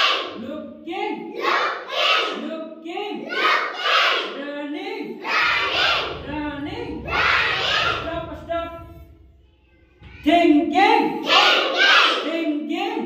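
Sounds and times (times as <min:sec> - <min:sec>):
children chanting in unison: 0:00.0 - 0:00.5, 0:01.2 - 0:02.6, 0:03.2 - 0:04.4, 0:05.0 - 0:08.6, 0:11.2 - 0:12.3
low rumble: 0:05.3 - 0:10.8.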